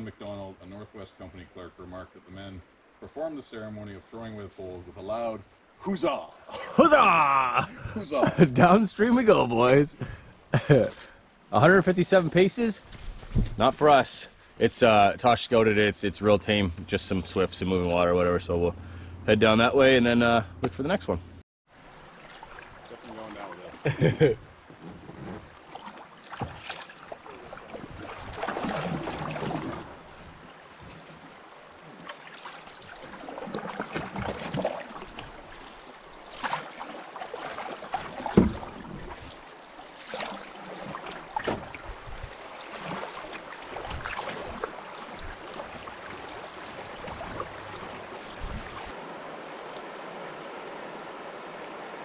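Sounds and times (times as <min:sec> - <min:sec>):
canoe paddle splashing water: 0:21.7 - 0:52.0
paddle knocks: 0:36.3 - 0:39.4, 0:40.0 - 0:48.8.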